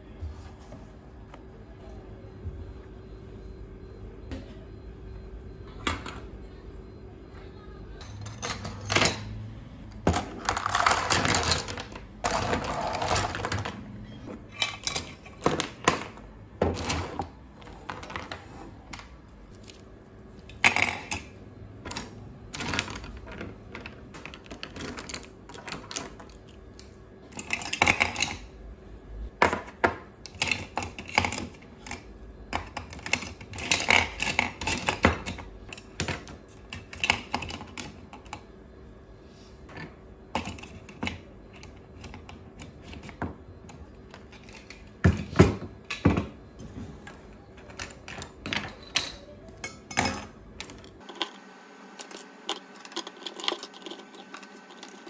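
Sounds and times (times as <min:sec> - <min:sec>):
plastic pens clattering in holder: 0:20.4 - 0:26.6.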